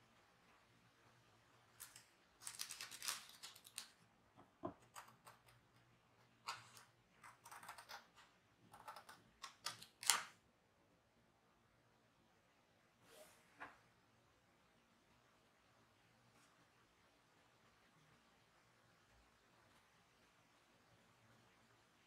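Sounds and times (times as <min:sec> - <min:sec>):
paper rustling: 0:01.8 - 0:04.0.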